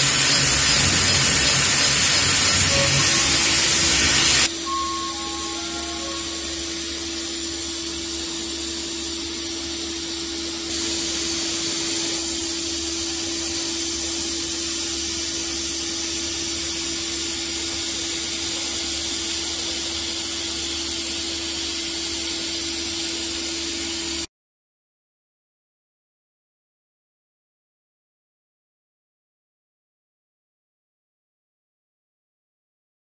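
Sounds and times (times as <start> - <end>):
machine hiss and hum: 0.0 - 24.3.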